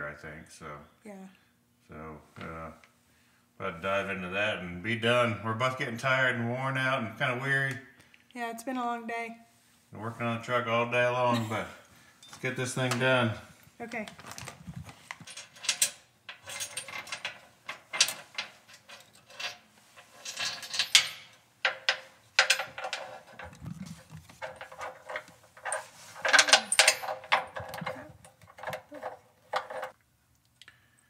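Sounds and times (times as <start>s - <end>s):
metal hardware clinking: 15.2s - 29.9s
steel wire scraping: 15.2s - 30.0s.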